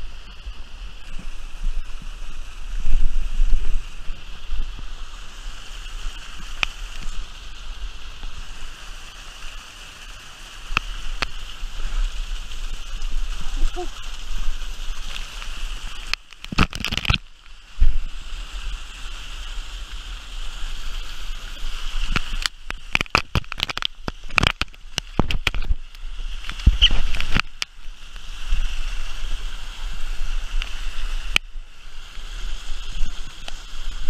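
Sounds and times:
river water rushing: 0.0s - 34.0s
sharp water splashes: 5.4s - 18.3s, 20.8s - 34.0s.

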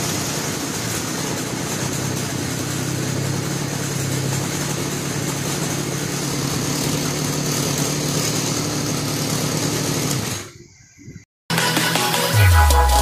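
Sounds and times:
brush cutter engine running: 0.0s - 10.5s.

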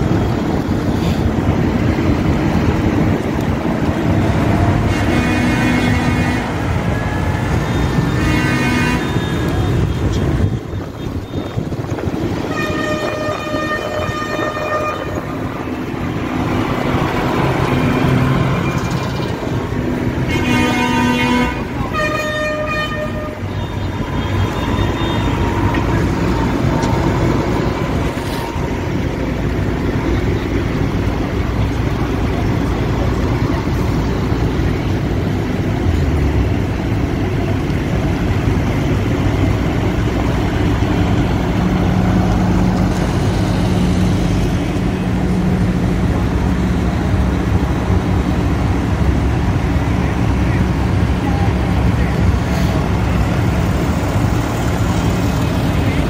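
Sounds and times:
tractor engines running: 0.0s - 56.0s
vehicle horns honking: 4.8s - 6.8s, 7.6s - 10.1s, 11.0s - 15.8s, 20.2s - 26.7s.

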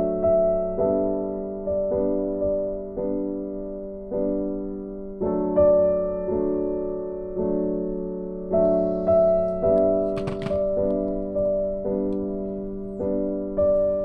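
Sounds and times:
keyboard chords: 0.0s - 14.0s.

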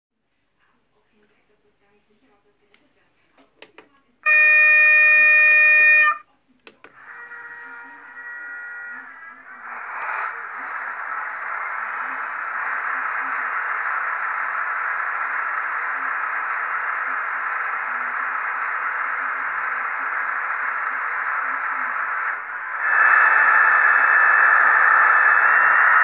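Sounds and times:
locomotive horn blast: 4.2s - 6.2s, 7.0s - 10.2s
diesel engine running: 7.0s - 26.0s.

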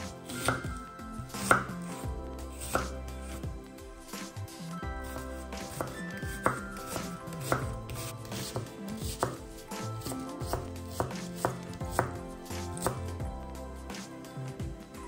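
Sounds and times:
knife chopping on cutting board: 0.0s - 3.4s, 5.0s - 13.1s.

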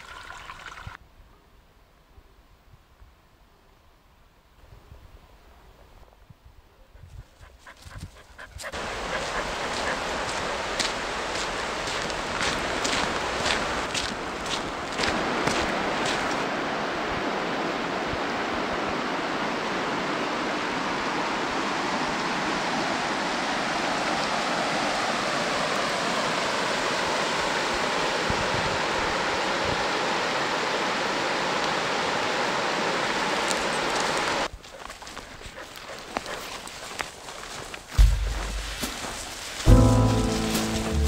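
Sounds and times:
river rapids rushing over rocks: 8.8s - 16.5s.

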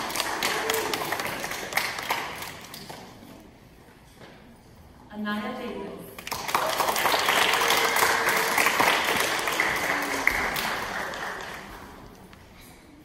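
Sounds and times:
audience applauding: 0.0s - 2.8s, 6.2s - 12.1s.

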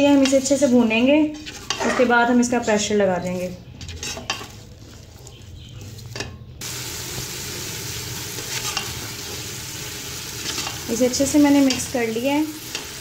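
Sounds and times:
spatula scraping pot: 0.0s - 6.5s, 8.4s - 9.3s
vegetables sizzling in oil: 6.6s - 13.0s.

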